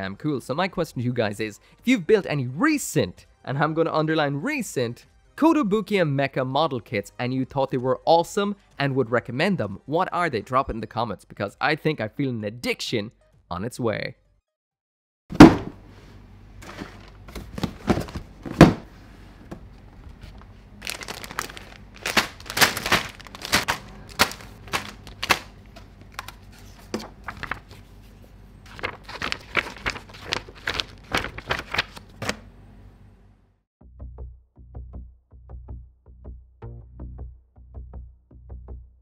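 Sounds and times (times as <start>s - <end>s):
plastic bags crinkling: 20.1s - 26.4s, 27.1s - 27.7s, 28.7s - 32.2s.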